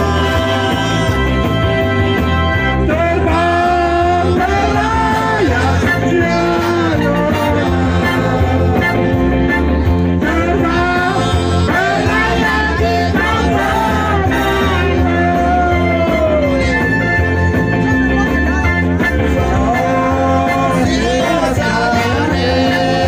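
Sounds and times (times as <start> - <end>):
person singing: 0.0 - 1.9, 2.8 - 18.6, 19.2 - 23.0
dance music: 0.0 - 23.0
repeating bass beat: 0.0 - 23.0.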